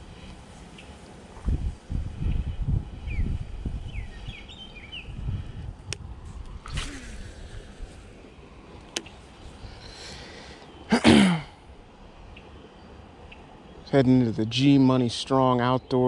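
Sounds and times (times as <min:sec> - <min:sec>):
bird chirps: 0:03.0 - 0:05.2.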